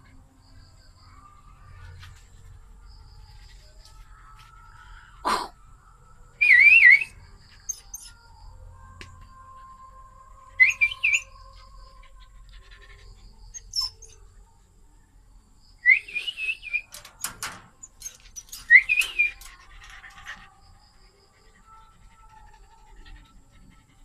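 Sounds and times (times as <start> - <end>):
dog whining: 6.6 - 8.2, 10.6 - 14.2.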